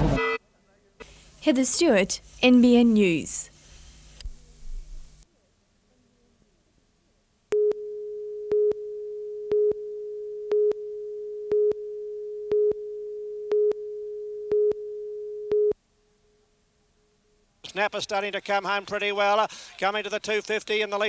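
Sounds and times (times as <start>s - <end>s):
short loud beeps: 0.0s - 0.4s
steady electronic test tone: 0.0s - 0.4s, 7.6s - 15.7s.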